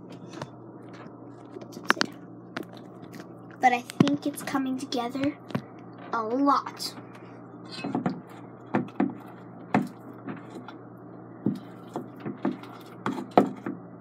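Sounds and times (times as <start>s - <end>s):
slime being stirred: 8.2s - 10.8s, 11.4s - 13.7s.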